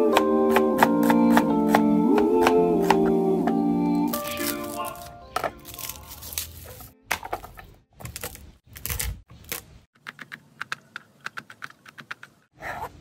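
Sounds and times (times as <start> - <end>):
cleaver chopping on cutting board: 0.1 - 3.2.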